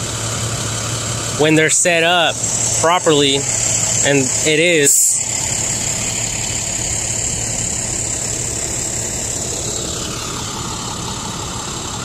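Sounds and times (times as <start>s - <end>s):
truck engine idling: 0.0s - 12.0s
high hiss: 1.6s - 9.8s.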